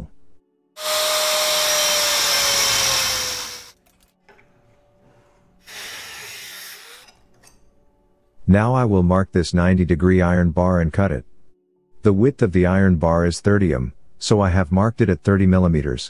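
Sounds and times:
angle grinder cutting steel: 0:00.8 - 0:03.8, 0:05.6 - 0:07.2.

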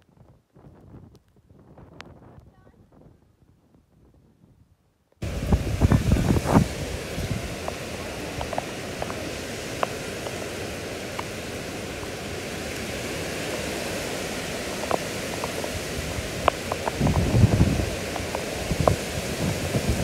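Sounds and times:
heavy rain hiss: 0:05.2 - 0:20.0.

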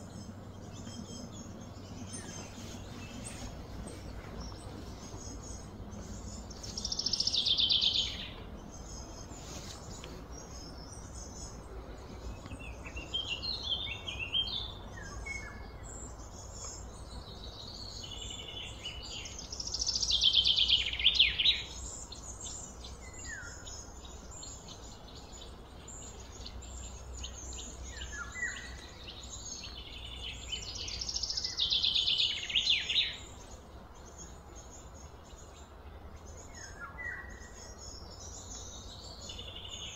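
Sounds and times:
low hum: 0:00.0 - 0:19.7
bird chirps: 0:00.0 - 0:39.9
songbird singing: 0:00.0 - 0:39.9.

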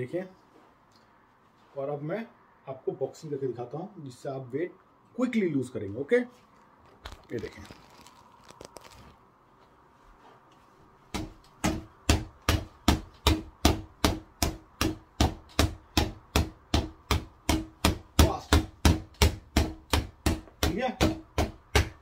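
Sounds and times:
gloves punching reflex bag: 0:11.1 - 0:22.0.

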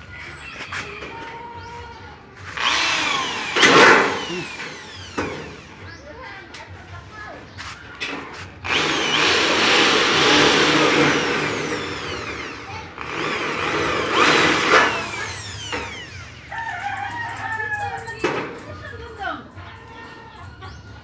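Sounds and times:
electric drill drilling sheet metal: 0:02.5 - 0:05.9, 0:08.6 - 0:16.5.

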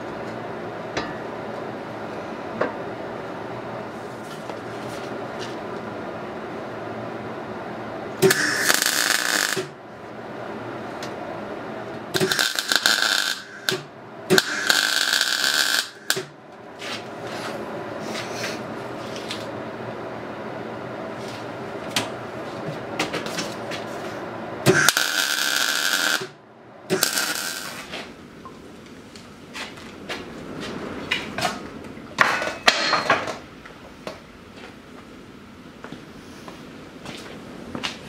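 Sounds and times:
welding machine hum: 0:07.7 - 0:19.5, 0:21.0 - 0:29.5
arc welding bursts: 0:08.2 - 0:09.8, 0:12.1 - 0:16.4, 0:24.7 - 0:27.9.

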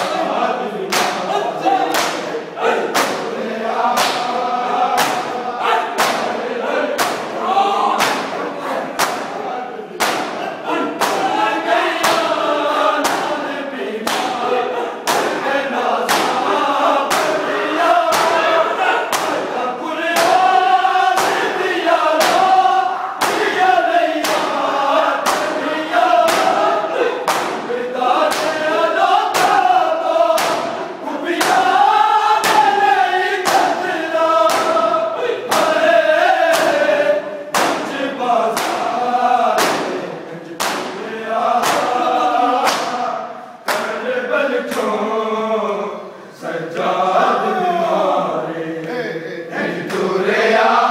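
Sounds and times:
men chanting a lament: 0:00.0 - 0:50.9
hands slapping chests: 0:00.9 - 0:06.4, 0:07.0 - 0:07.4, 0:08.0 - 0:09.4, 0:10.0 - 0:13.4, 0:14.0 - 0:17.5, 0:18.1 - 0:19.5, 0:20.1 - 0:22.6, 0:23.2 - 0:31.8, 0:32.4 - 0:32.8, 0:33.4 - 0:34.9, 0:35.5 - 0:35.8, 0:36.4 - 0:36.9, 0:37.5 - 0:38.9, 0:39.5 - 0:42.0, 0:42.6 - 0:43.0, 0:43.7 - 0:44.0.

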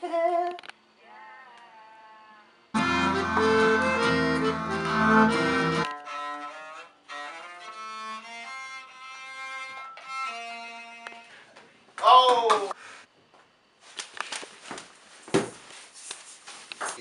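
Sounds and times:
accordion playing chords: 0:02.8 - 0:05.9
bowed string instrument held notes: 0:02.8 - 0:11.3.

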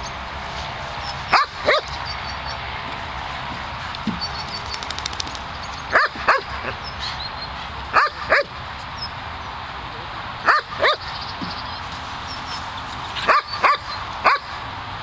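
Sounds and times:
small dog barking: 0:05.9 - 0:06.4, 0:07.9 - 0:08.5, 0:10.4 - 0:11.0, 0:13.3 - 0:14.5.

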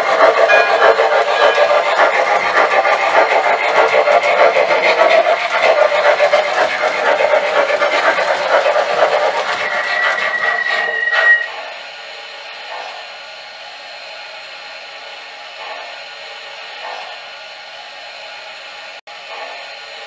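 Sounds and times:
wheels running on metal track: 0:00.0 - 0:11.8
model steam locomotive chuffing: 0:00.0 - 0:17.6, 0:19.2 - 0:20.0
high steady tone: 0:00.5 - 0:01.9.

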